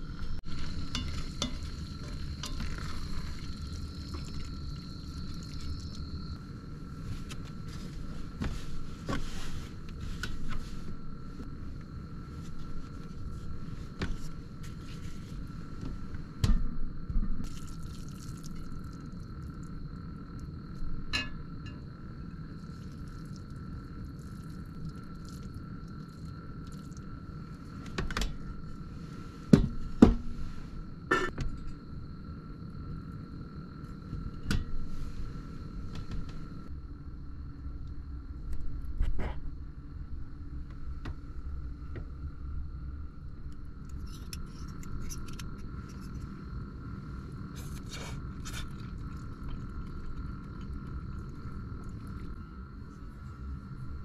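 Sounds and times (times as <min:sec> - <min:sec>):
faint steady hum: 0:00.0 - 0:54.0
tongs clinking on enamel pot: 0:00.9 - 0:01.7.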